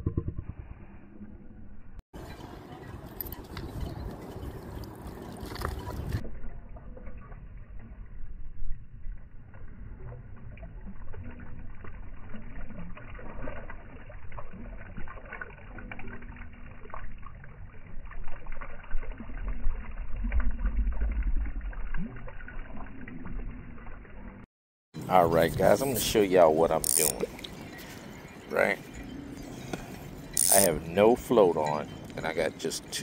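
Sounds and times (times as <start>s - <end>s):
low rumble: 0.0s - 2.6s, 3.3s - 13.4s, 18.0s - 24.4s
water splashing and dripping: 2.2s - 24.5s.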